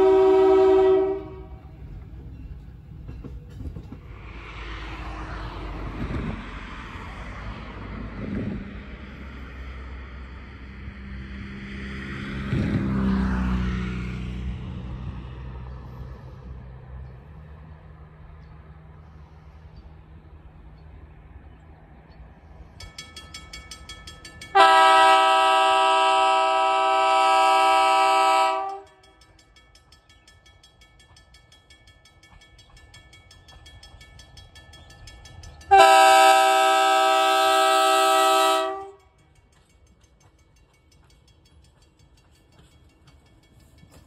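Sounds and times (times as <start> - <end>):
train air horn blasts: 0.0 - 1.9, 24.5 - 29.1, 35.7 - 39.2.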